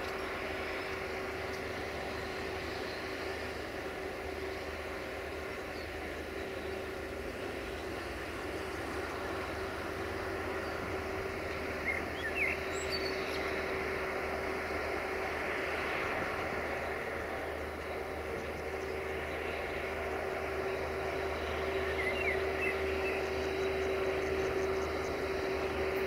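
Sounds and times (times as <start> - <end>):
locomotive engine hum: 0.0 - 26.0
bird chirps: 11.8 - 13.5, 21.7 - 25.2.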